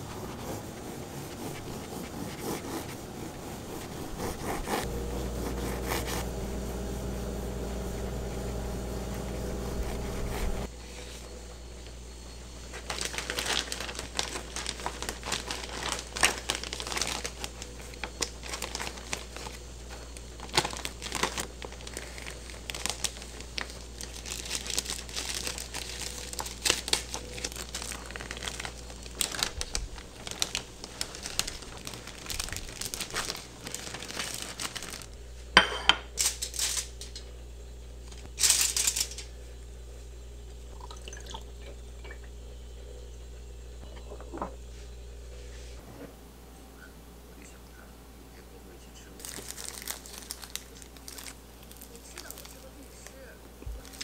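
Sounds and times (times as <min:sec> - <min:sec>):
packaging crinkling and rustling: 0:12.6 - 0:35.2, 0:36.2 - 0:37.2, 0:38.1 - 0:39.3, 0:49.2 - 0:54.0.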